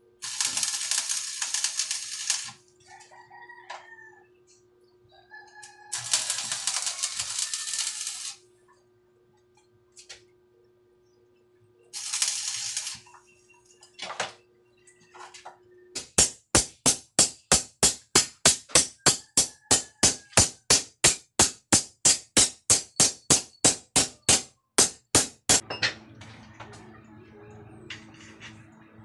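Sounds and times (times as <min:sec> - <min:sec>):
welding arc crackling: 0:00.2 - 0:02.7, 0:05.9 - 0:08.4, 0:12.0 - 0:13.2, 0:16.0 - 0:25.6
hammer striking steel: 0:16.0 - 0:26.0.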